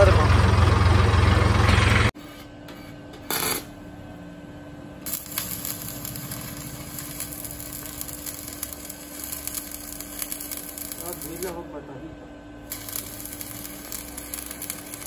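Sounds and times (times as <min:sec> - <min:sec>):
arc welding crackle: 0:03.3 - 0:03.7, 0:05.0 - 0:11.8, 0:12.6 - 0:15.0
low hum: 0:03.6 - 0:11.5, 0:12.1 - 0:15.0.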